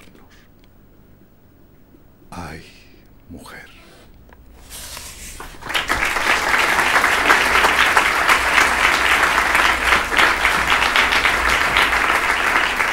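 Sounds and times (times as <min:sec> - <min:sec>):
audience applause: 0:05.3 - 0:12.9.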